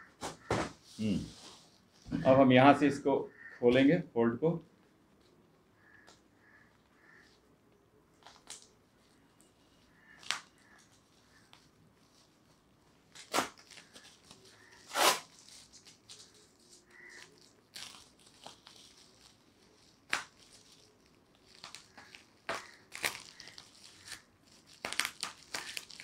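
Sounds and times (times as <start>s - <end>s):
package rustling and crinkling: 8.1s - 26.0s
package tearing: 8.2s - 8.8s, 13.1s - 26.0s.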